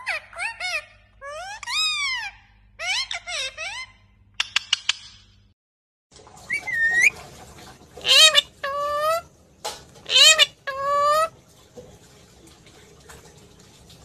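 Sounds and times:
parakeets squawking: 0.0 - 4.0, 8.0 - 9.3, 10.0 - 11.4.

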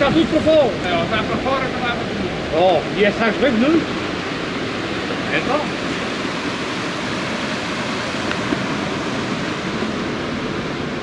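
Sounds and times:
ocean surf breaking on rocks: 0.0 - 11.0.

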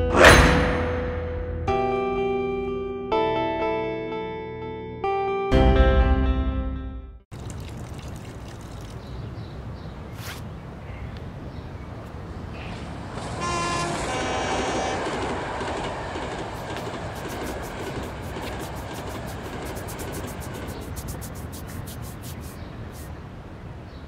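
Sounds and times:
traffic rumble: 7.3 - 24.0
vehicle horn: 13.2 - 15.4.

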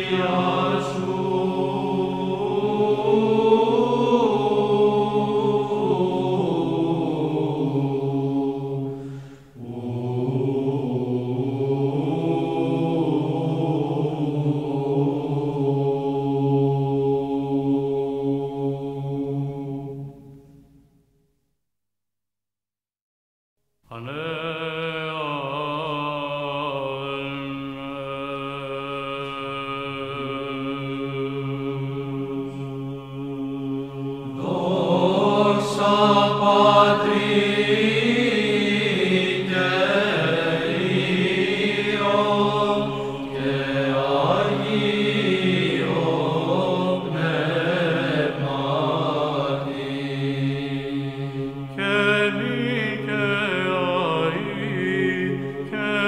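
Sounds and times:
voices chanting a held drone: 0.0 - 20.4, 23.9 - 56.0
wavering melodic chant line: 33.3 - 56.0.

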